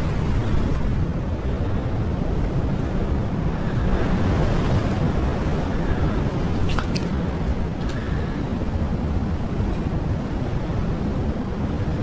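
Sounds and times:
wind on microphone: 0:00.0 - 0:12.0
surf washing against rocks: 0:03.0 - 0:10.0.

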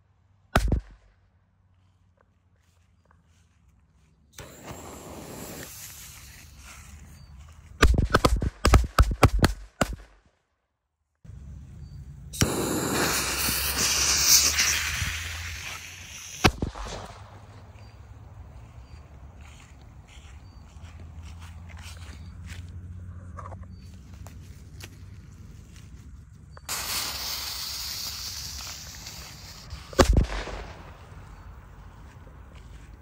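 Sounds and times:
firework hissing spray: 0:04.4 - 0:06.7, 0:12.4 - 0:17.5, 0:26.7 - 0:30.9
firecrackers banging: 0:12.4 - 0:17.9, 0:26.7 - 0:31.5.

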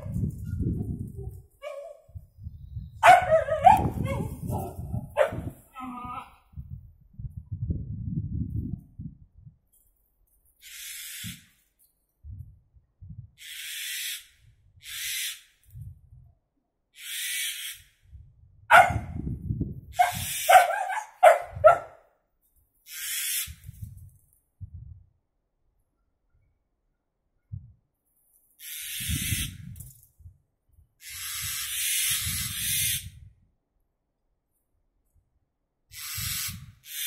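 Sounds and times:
dog barking: 0:01.6 - 0:02.0, 0:03.0 - 0:05.6, 0:18.7 - 0:19.1, 0:20.0 - 0:22.0.

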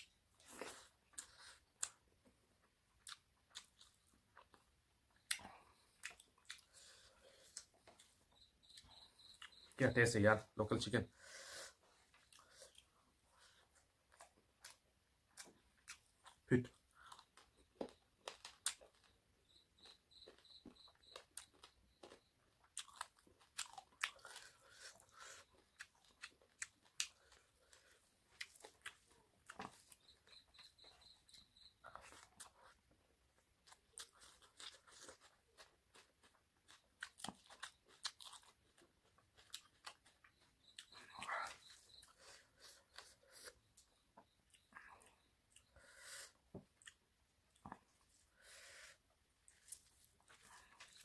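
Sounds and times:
chewing and biting food: 0:03.0 - 0:09.7, 0:12.0 - 0:45.8, 0:49.4 - 0:51.0.

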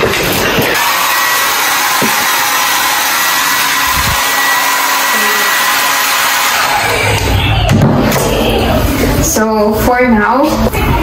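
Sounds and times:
hair dryer blowing: 0:00.0 - 0:07.4.

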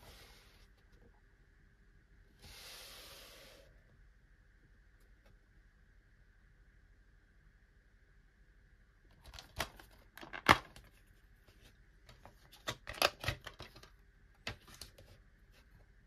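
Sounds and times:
plastic case clicks and snaps: 0:09.3 - 0:10.9.

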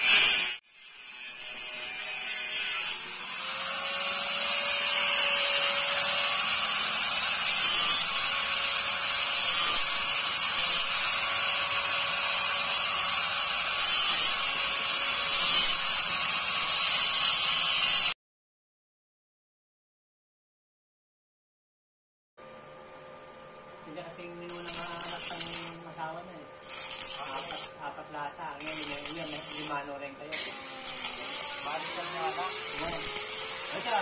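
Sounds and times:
angle grinder cutting steel: 0:00.0 - 0:18.2, 0:24.5 - 0:26.0, 0:26.6 - 0:34.0.

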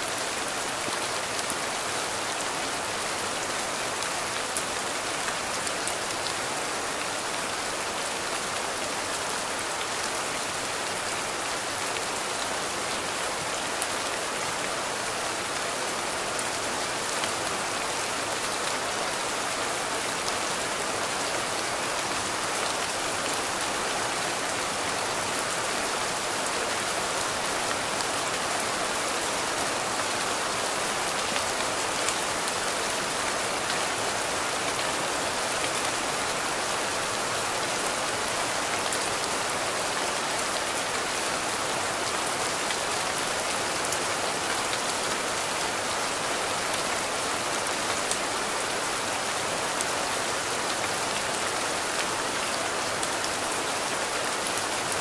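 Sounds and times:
steady rain hiss: 0:00.0 - 0:55.0.

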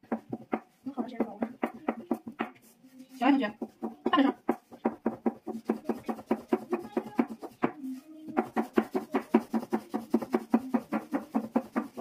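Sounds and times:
rolling pin knocking on board: 0:00.0 - 0:02.6, 0:03.5 - 0:12.0.

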